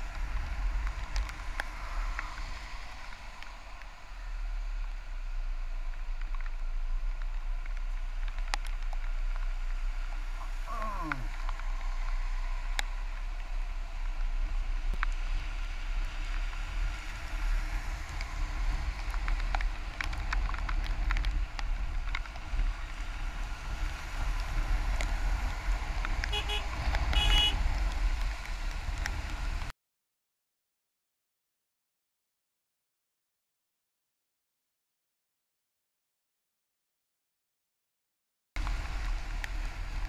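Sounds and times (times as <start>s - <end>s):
vehicle horn honking: 26.3s - 27.6s.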